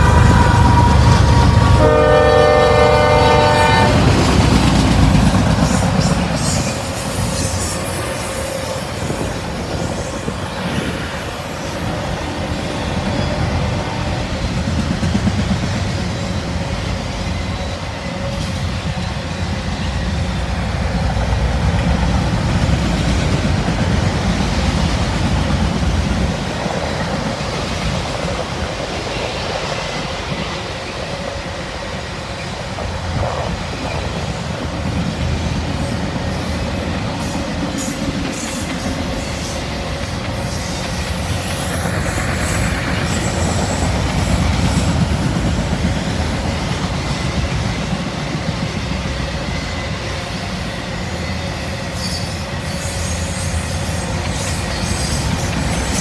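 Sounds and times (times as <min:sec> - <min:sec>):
locomotive air horn: 0:00.0 - 0:04.2
train wheels clacking on rail joints: 0:00.0 - 0:56.0.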